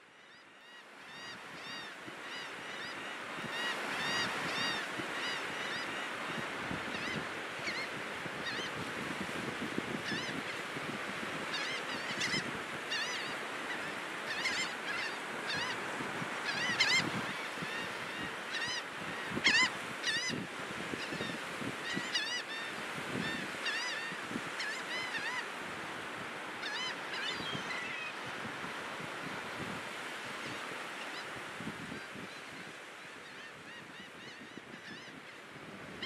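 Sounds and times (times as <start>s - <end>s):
surf washing on beach: 0.8s - 36.0s
gulls calling: 11.4s - 20.4s.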